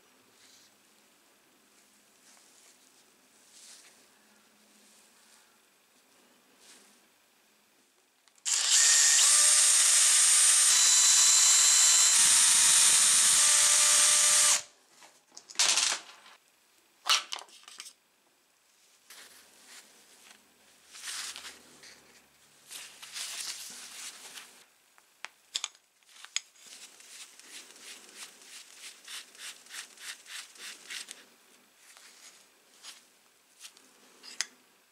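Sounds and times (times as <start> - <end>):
cordless drill running: 8.5 - 14.7.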